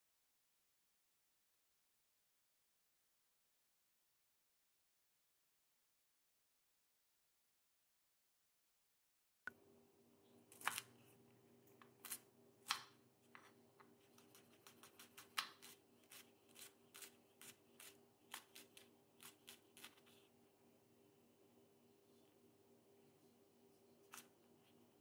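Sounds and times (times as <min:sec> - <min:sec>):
knife chopping on cutting board: 0:14.2 - 0:20.0.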